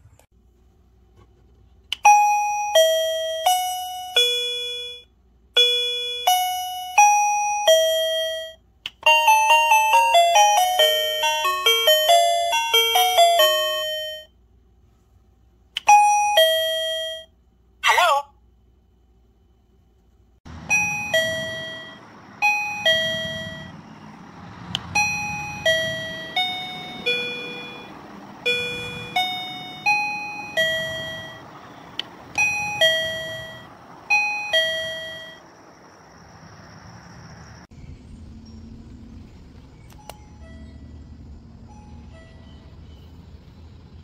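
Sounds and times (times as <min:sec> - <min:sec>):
doorbell chime tune: 0:02.0 - 0:14.3, 0:15.8 - 0:17.3, 0:20.7 - 0:23.8, 0:24.9 - 0:31.5, 0:32.3 - 0:35.4.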